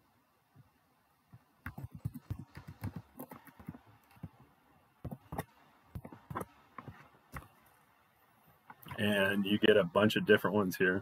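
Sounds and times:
typing on computer keyboard: 0:01.7 - 0:03.8.

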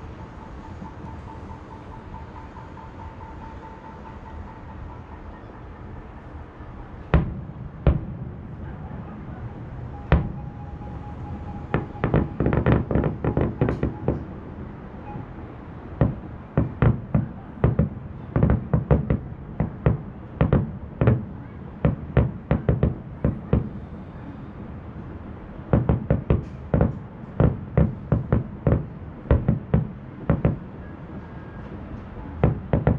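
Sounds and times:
distant fireworks bursting: 0:06.8 - 0:24.2, 0:25.5 - 0:32.9.

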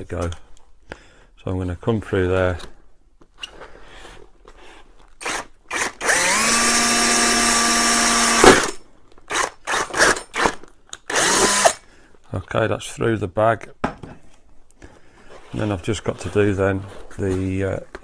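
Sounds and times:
power drill whining: 0:05.2 - 0:11.8.

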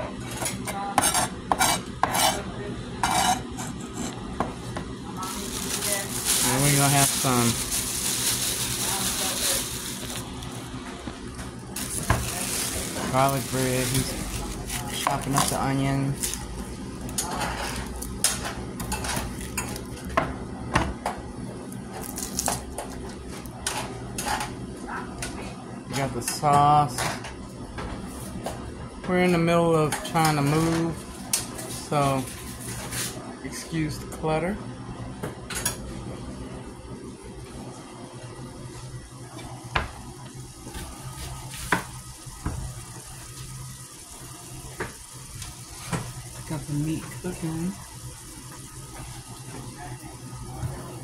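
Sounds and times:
steady low hum: 0:00.0 - 0:29.7
meat sizzling in a frying pan: 0:05.2 - 0:10.6, 0:11.6 - 0:19.9, 0:40.1 - 0:51.0.

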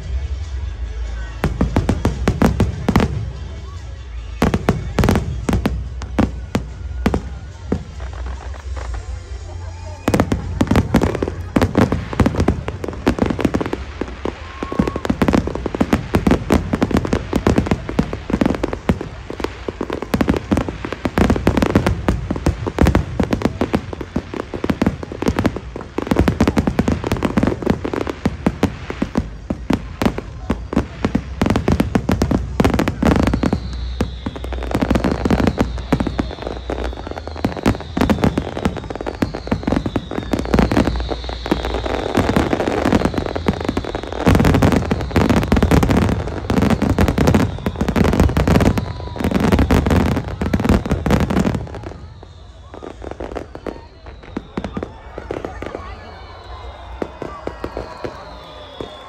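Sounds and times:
fireworks bursts and crackle: 0:00.0 - 0:59.0
high falling whistle: 0:32.6 - 0:59.0.

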